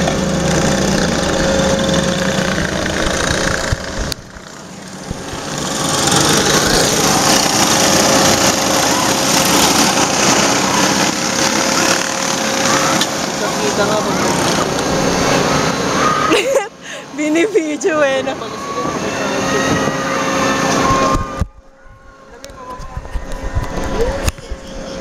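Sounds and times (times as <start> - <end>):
go-kart engines droning: 0.0 - 25.0.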